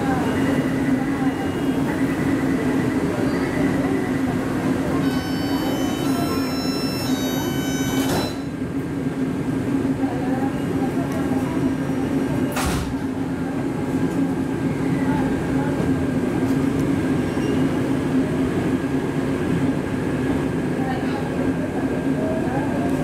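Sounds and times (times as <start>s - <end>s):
train door warning beeps: 0.0s - 8.6s
train car hum: 0.0s - 23.0s
sliding doors shutting: 7.1s - 8.4s.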